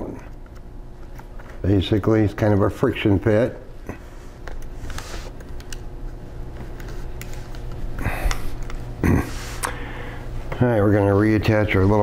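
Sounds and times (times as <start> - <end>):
hands clicking and rustling cables: 0.0 - 1.7, 4.4 - 8.9
steady low hum: 0.0 - 12.0
breathy exhale: 9.5 - 10.3.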